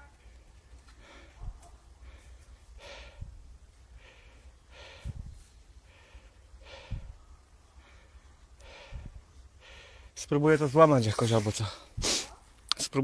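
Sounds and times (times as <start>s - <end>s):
heavy rough breaths or snorts: 0.9s - 3.3s, 3.9s - 7.2s, 7.8s - 10.2s, 11.8s - 12.4s.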